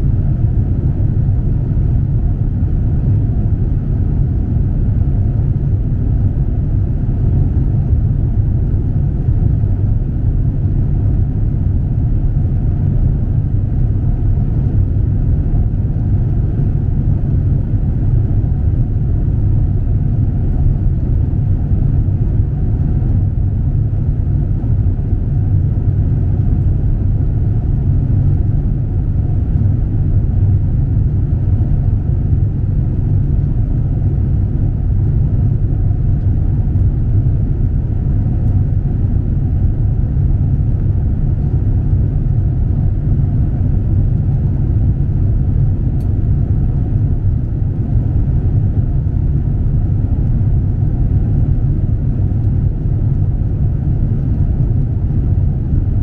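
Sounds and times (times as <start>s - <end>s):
airliner cabin rumble: 0.0s - 56.0s.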